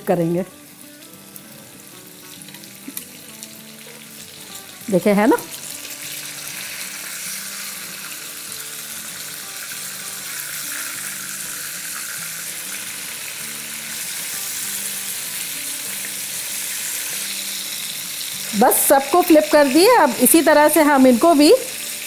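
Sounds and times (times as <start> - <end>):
fish sizzling in hot oil: 0.1 - 22.0.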